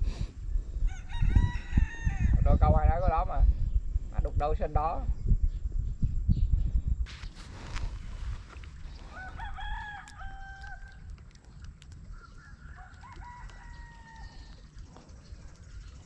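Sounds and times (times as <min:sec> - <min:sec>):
wind rumble on microphone: 0:00.0 - 0:16.0
rooster crowing: 0:00.9 - 0:02.4, 0:09.1 - 0:11.0, 0:12.4 - 0:14.5.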